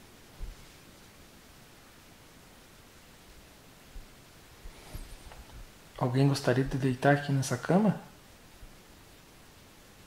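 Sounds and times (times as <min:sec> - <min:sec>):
faint room hiss: 0:00.0 - 0:10.0
bedding rustling: 0:03.8 - 0:05.9.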